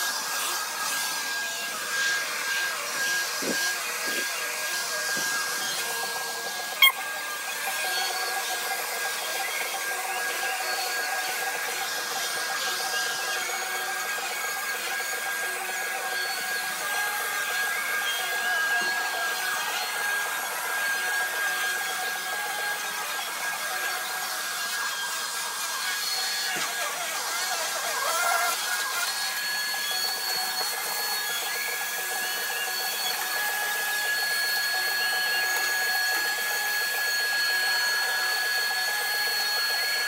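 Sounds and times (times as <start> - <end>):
upright vacuum cleaner running: 0.0 - 40.0.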